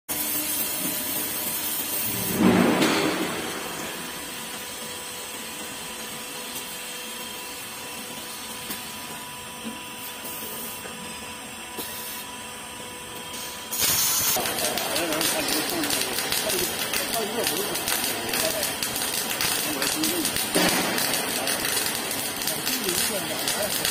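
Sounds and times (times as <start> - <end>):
machine hum with whining tones: 0.1 - 23.9
loud hissing rush: 13.7 - 23.9.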